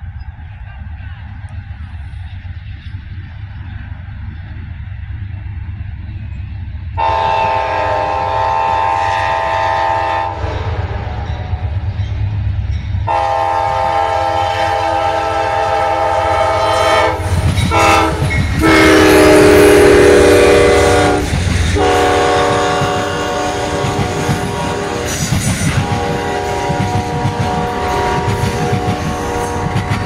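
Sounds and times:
train rumble: 0.0 - 30.0
locomotive air horn blasts: 7.0 - 11.2, 13.1 - 30.0.

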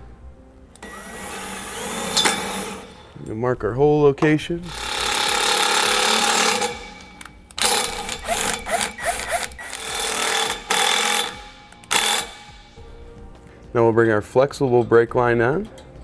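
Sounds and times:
cordless drill running: 0.8 - 2.8, 4.7 - 6.8, 7.6 - 12.4
screw squeaking into metal: 7.8 - 10.2.

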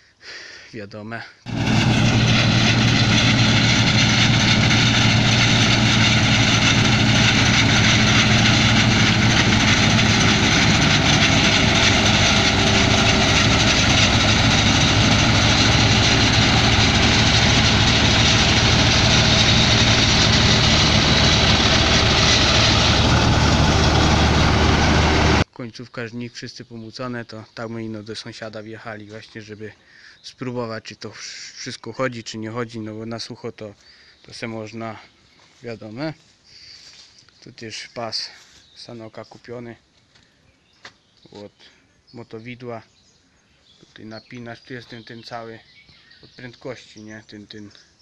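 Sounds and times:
combine harvester running: 1.5 - 25.4.

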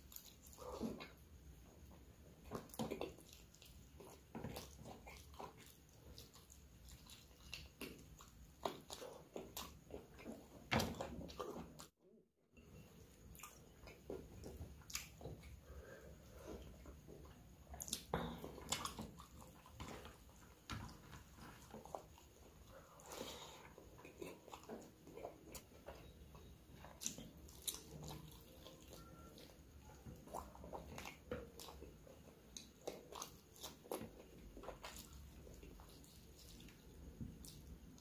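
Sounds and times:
person chewing and biting: 2.4 - 10.6, 17.2 - 20.3, 26.8 - 38.0.

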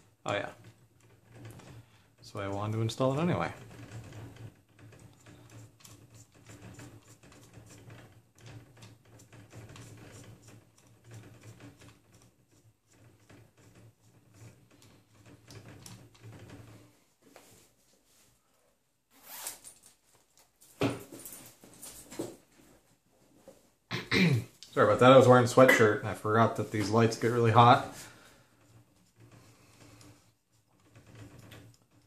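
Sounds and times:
sweatshirt rustling: 19.1 - 19.7.

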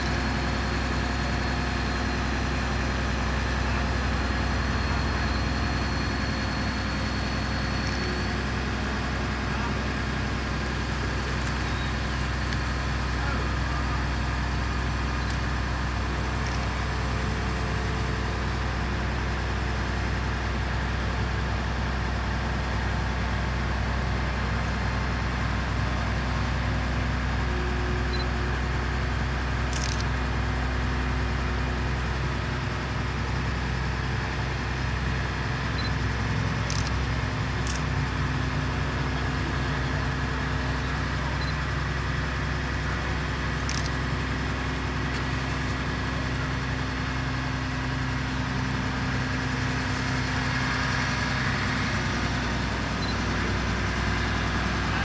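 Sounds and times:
diesel engine droning: 0.0 - 55.0.

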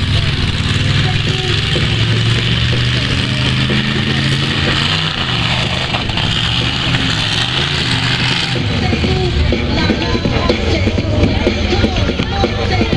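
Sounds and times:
monster truck engine running: 0.0 - 12.9
public address music or voices: 0.0 - 12.9.

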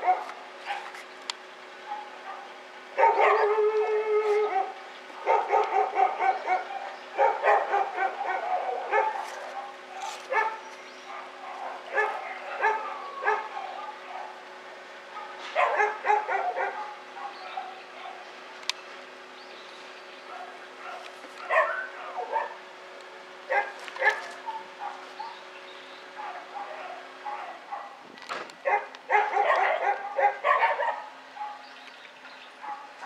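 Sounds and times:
dogs barking and yelping: 0.0 - 1.0, 1.8 - 18.4, 20.2 - 22.8, 23.4 - 33.0.

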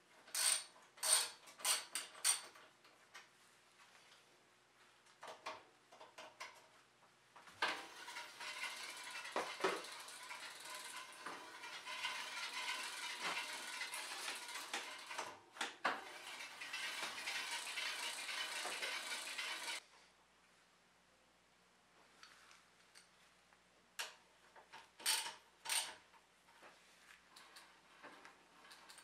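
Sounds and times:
disc rotor rubbing brake caliper: 7.7 - 15.2, 16.0 - 19.8
freewheel ticking: 7.7 - 15.4, 16.0 - 19.8.

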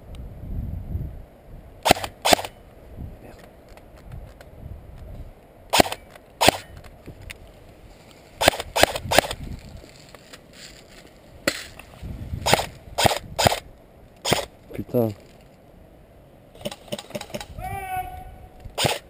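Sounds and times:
airsoft rifle shots: 1.8 - 2.6, 5.7 - 6.8, 8.4 - 9.4, 12.4 - 14.5, 16.6 - 17.6, 18.8 - 19.0.

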